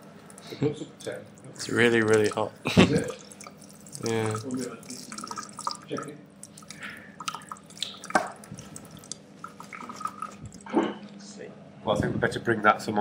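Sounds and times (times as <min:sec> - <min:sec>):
water trickling into a sink: 0:01.0 - 0:10.7.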